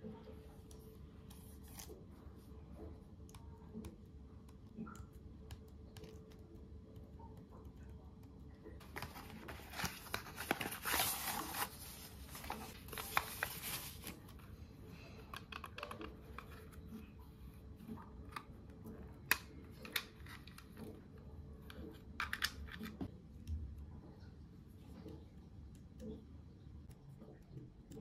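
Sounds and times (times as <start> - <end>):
cardboard and plastic crinkling: 8.8 - 14.4.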